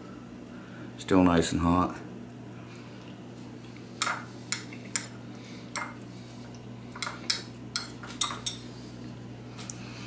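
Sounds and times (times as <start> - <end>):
metal spoon clinking on bowl: 7.0 - 8.6.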